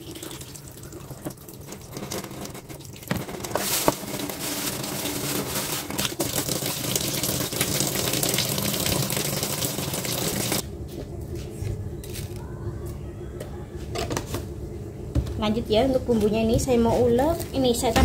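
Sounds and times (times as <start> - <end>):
plastic bag crinkling: 2.8 - 6.2.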